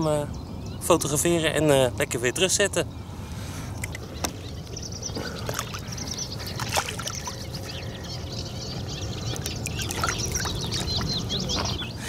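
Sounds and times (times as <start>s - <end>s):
birds chirping: 0.0s - 12.0s
shallow water splashing: 3.7s - 11.9s.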